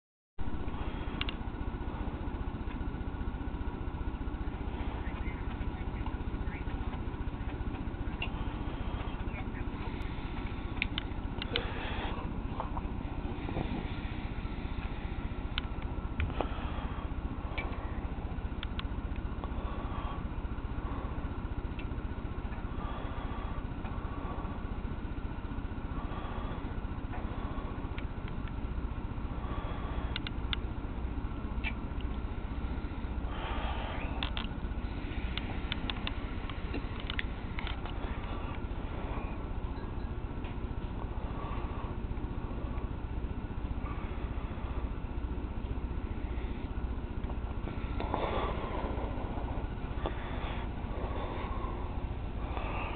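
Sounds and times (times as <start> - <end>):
faint clicks: 9.0 - 11.6, 18.6 - 19.5, 30.1 - 30.7, 34.0 - 34.6, 35.3 - 38.6.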